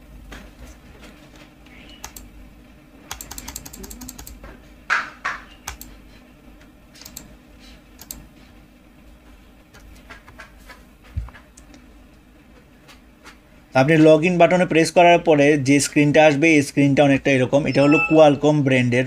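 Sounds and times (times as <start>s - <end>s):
mouse clicking: 2.0s - 2.3s, 3.1s - 4.4s, 5.7s - 5.9s
keyboard keystrokes: 3.1s - 4.4s, 5.7s - 5.9s.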